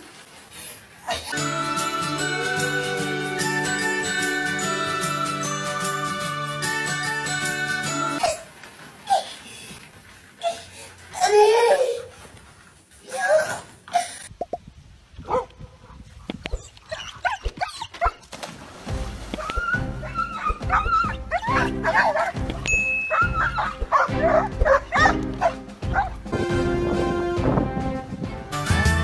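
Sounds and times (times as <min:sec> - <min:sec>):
dogs barking and yelping: 0:16.4 - 0:18.3, 0:19.3 - 0:26.3
background music with steady beat: 0:18.9 - 0:29.0.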